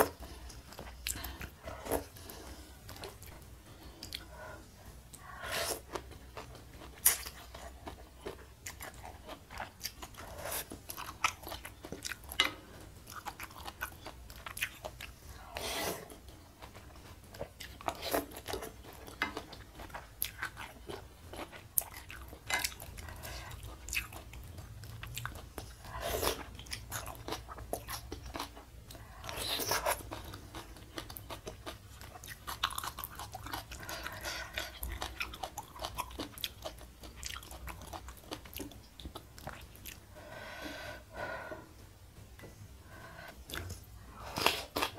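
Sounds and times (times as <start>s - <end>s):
wet chewing and crunching: 5.1s - 15.5s, 16.1s - 40.0s, 43.5s - 44.9s.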